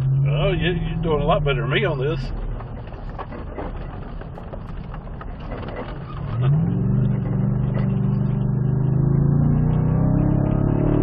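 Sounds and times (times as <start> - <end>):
truck engine revving: 6.2 - 11.0.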